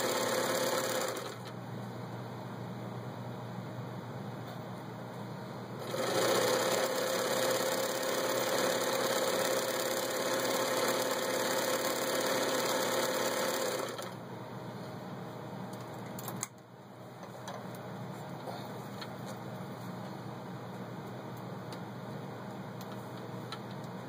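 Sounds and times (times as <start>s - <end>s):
sewing machine stitching: 0.0s - 1.5s, 5.8s - 14.2s.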